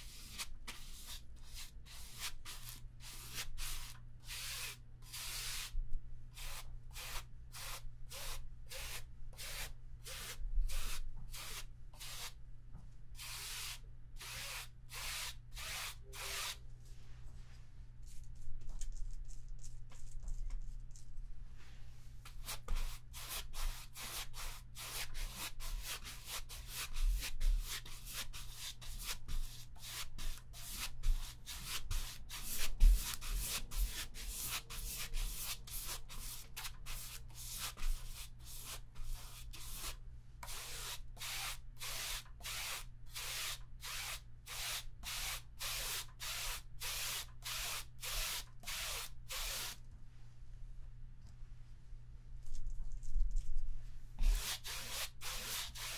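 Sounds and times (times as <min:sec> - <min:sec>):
paintbrush scrubbing canvas: 0:22.3 - 0:49.8, 0:54.2 - 0:55.9.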